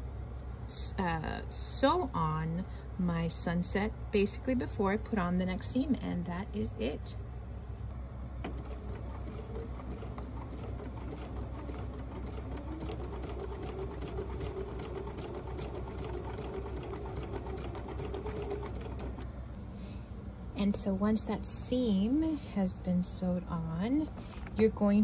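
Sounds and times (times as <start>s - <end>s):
sewing machine stitching: 8.4s - 19.3s.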